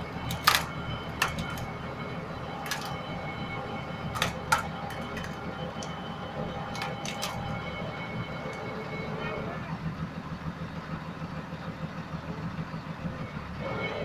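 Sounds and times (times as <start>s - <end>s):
road roller engine running: 0.0s - 14.0s
metallic clicks and clanks: 0.2s - 1.7s, 2.6s - 3.1s, 4.1s - 6.0s, 6.6s - 7.6s.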